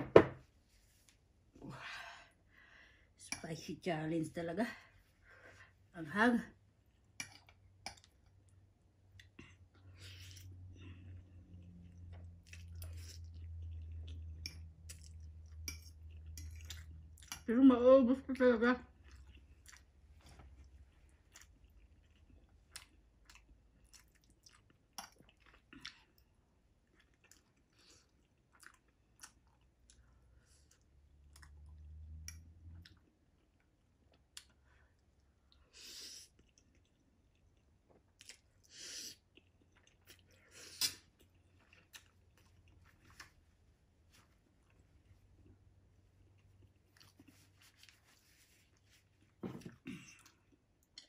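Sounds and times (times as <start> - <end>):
chewing noodles: 7.0 - 17.5, 18.9 - 34.6, 35.2 - 43.5, 44.2 - 49.4.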